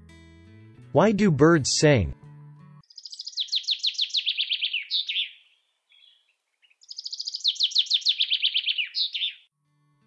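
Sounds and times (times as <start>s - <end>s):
songbird trilling: 2.8s - 9.5s.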